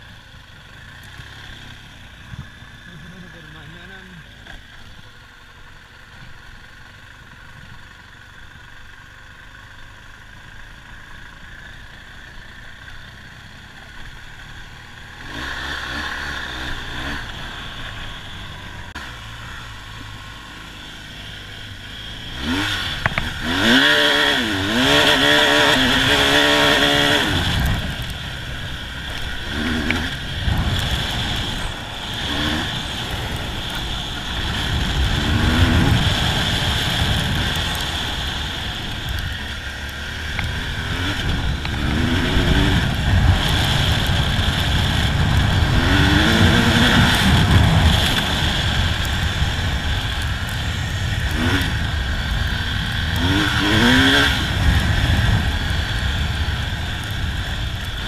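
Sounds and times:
motorcycle engine revving: 0:00.0 - 0:58.0
tyre and wind noise: 0:22.4 - 0:39.7, 0:40.3 - 0:58.0.

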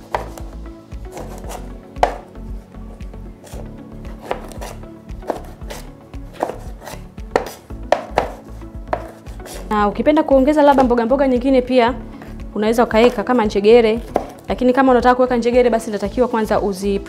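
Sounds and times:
knife chopping on cutting board: 0:00.0 - 0:00.5, 0:01.1 - 0:02.3, 0:03.4 - 0:09.7, 0:14.0 - 0:14.4.

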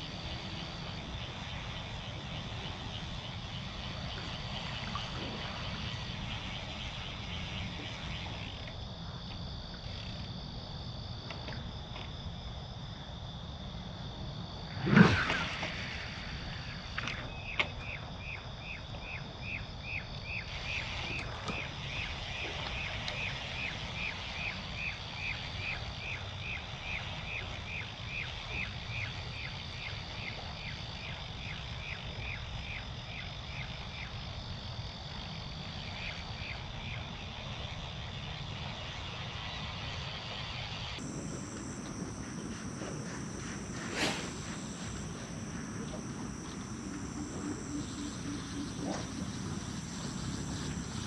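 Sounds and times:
high-pitched two-tone hum: 0:36.0 - 0:51.0.

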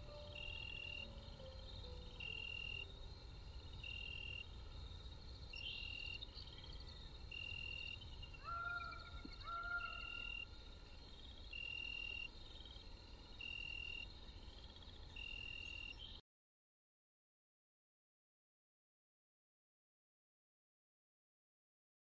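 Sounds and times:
fast chirping trills: 0:00.0 - 0:03.0, 0:05.4 - 0:10.5
high steady insect-like note: 0:00.0 - 0:09.1, 0:10.0 - 0:16.2.

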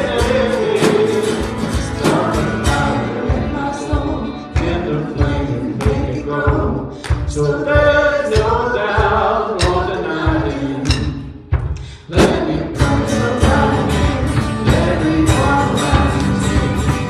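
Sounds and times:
electric bass: 0:00.0 - 0:05.5, 0:12.8 - 0:17.0
person singing: 0:00.0 - 0:11.2, 0:12.0 - 0:17.0
acoustic guitar: 0:00.0 - 0:17.0
drum kit beat: 0:00.0 - 0:17.0.

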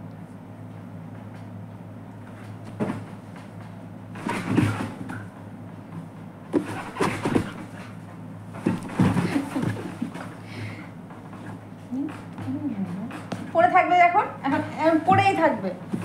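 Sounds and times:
dog bumping and rustling on mattress: 0:02.3 - 0:10.4.

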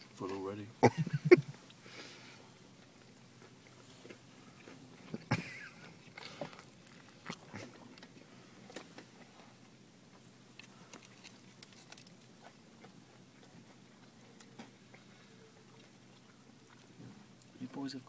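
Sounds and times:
man chewing: 0:01.0 - 0:17.6.

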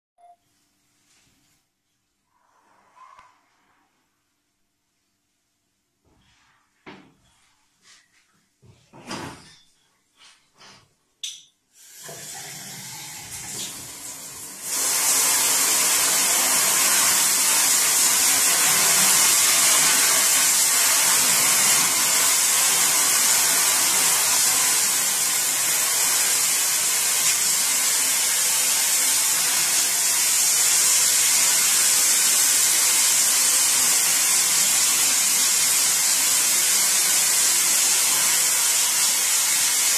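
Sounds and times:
water running: 0:11.2 - 0:39.9
spray nozzle hissing into sink: 0:14.6 - 0:39.9.

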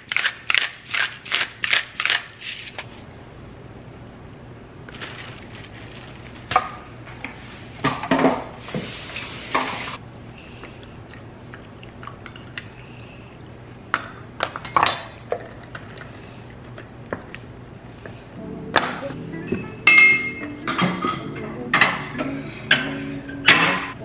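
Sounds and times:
jar and cellar knocks and clinks: 0:19.5 - 0:22.0.

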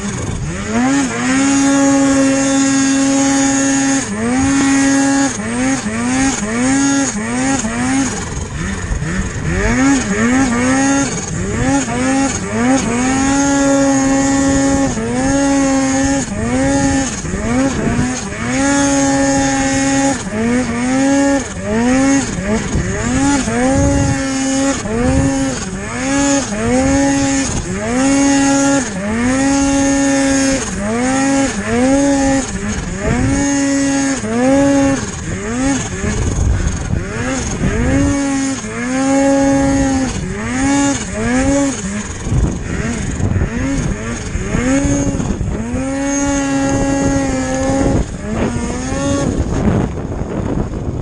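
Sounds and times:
snowmobile engine revving: 0:00.0 - 0:51.0.

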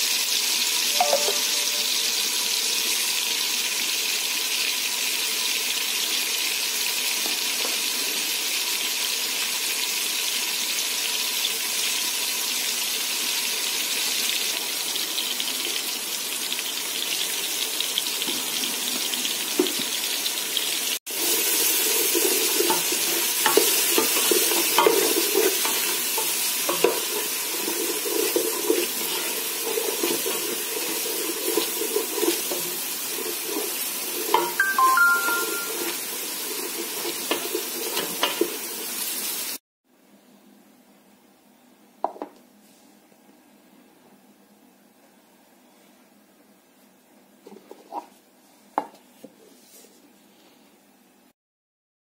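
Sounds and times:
sauce sizzling in oil: 0:00.0 - 0:39.6
wooden spatula scraping pot: 0:21.1 - 0:34.6, 0:35.6 - 0:38.7.

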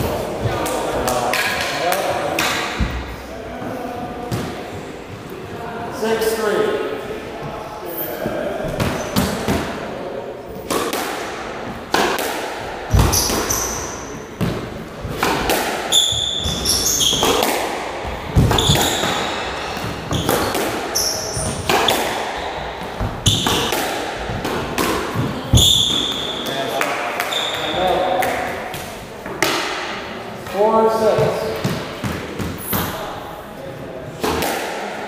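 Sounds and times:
squash ball hitting rackets and walls: 0:00.0 - 0:03.3, 0:04.1 - 0:05.3, 0:08.2 - 0:33.2, 0:34.0 - 0:35.0
shoes squeaking on wooden floor: 0:12.9 - 0:15.3, 0:15.9 - 0:23.7, 0:25.1 - 0:26.6, 0:27.2 - 0:28.0.

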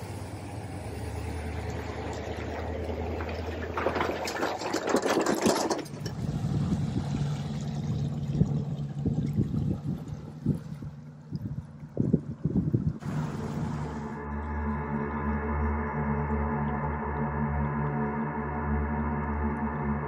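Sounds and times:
higher motor hum with knocks: 0:11.8 - 0:14.8
motor humming: 0:12.7 - 0:14.8
loud rushing noise: 0:13.0 - 0:14.3.

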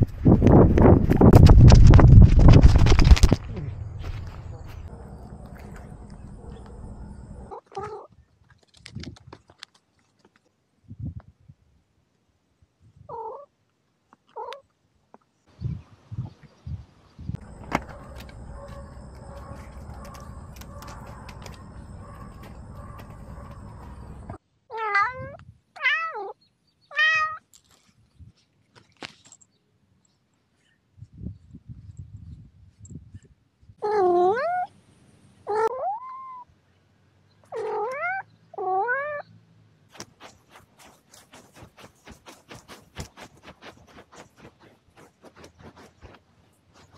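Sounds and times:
cat paw scratching sand: 0:00.0 - 0:07.5, 0:17.4 - 0:24.4, 0:39.9 - 0:46.9
cat calling: 0:37.5 - 0:39.2.

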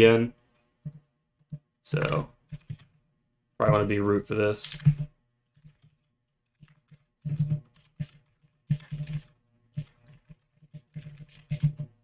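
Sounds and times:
typing on computer keyboard: 0:00.8 - 0:03.0, 0:04.6 - 0:11.9.

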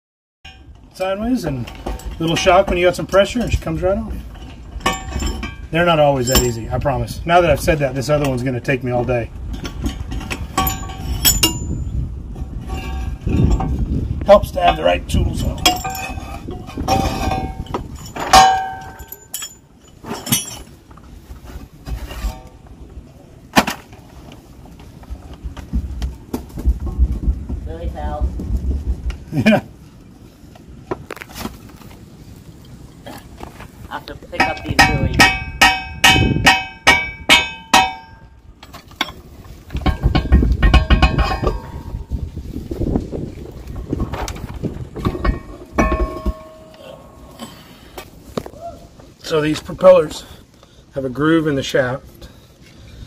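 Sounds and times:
metal clanks and clinks: 0:00.5 - 0:06.8, 0:09.5 - 0:13.8, 0:14.5 - 0:21.0, 0:34.4 - 0:42.3, 0:43.7 - 0:47.6
wind rumbling on microphone: 0:00.5 - 0:23.5, 0:24.2 - 0:47.3
small metallic clinks: 0:06.2 - 0:06.7, 0:09.9 - 0:11.9, 0:14.7 - 0:20.8
hammer on metal: 0:34.4 - 0:38.3.

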